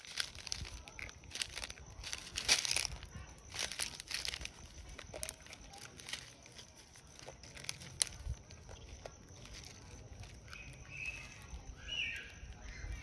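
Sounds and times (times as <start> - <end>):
plastic wrapper crackling: 0.0 - 13.0
monkey chewing: 4.0 - 11.5.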